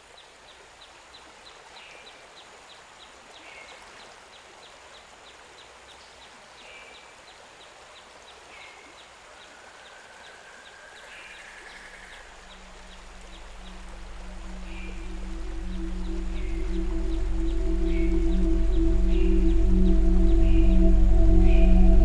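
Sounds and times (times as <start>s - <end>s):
river rushing: 12.1s - 22.0s
low music notes: 12.6s - 22.0s.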